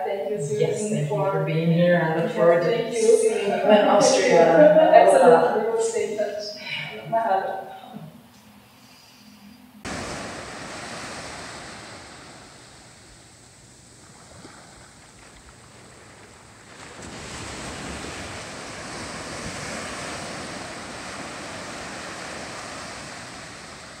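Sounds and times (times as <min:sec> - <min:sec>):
waves washing onto beach: 0:09.8 - 0:24.0.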